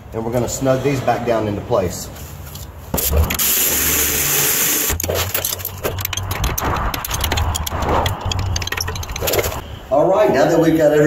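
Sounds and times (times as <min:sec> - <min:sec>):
ratchet clicking and whirring: 0:03.3 - 0:09.6.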